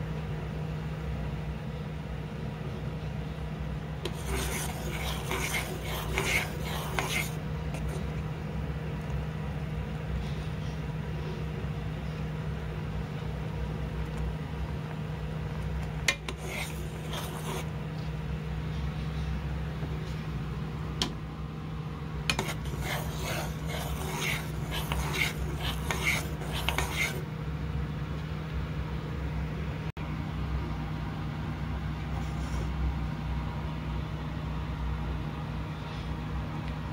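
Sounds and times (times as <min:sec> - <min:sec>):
steady low hum: 0:00.0 - 0:36.9
spoon scraping a saucepan: 0:04.1 - 0:08.1, 0:16.1 - 0:17.7, 0:22.3 - 0:27.2.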